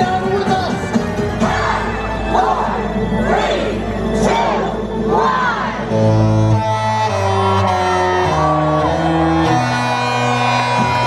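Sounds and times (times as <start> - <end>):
ship horn playing a tune: 5.9 - 10.9.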